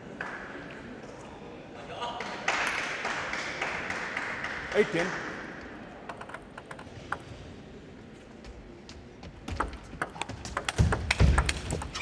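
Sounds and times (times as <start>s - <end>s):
table tennis ball clicks: 6.1s - 7.3s, 9.5s - 12.0s.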